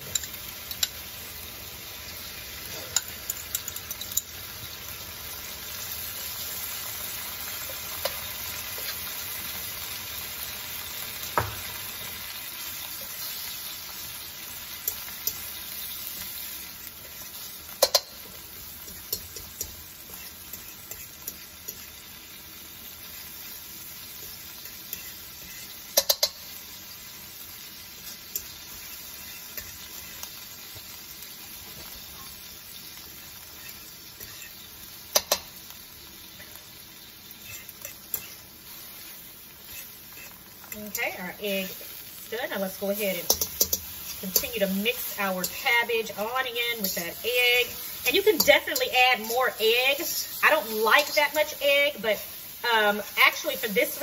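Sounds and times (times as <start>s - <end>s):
egg sizzling in a wok: 0.0s - 54.0s
fork clicking on a pan: 2.9s - 4.3s, 14.8s - 15.5s, 17.7s - 21.9s, 24.2s - 26.6s, 33.6s - 35.5s, 37.5s - 38.4s, 43.3s - 44.5s.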